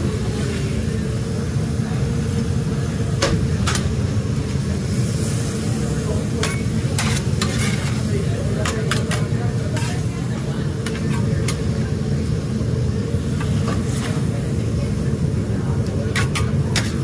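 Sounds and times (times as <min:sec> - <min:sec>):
kitchen noise rumble: 0:00.0 - 0:17.0
metal spatulas scraping griddle: 0:06.4 - 0:10.1, 0:10.8 - 0:11.7, 0:13.4 - 0:14.3, 0:16.1 - 0:17.0.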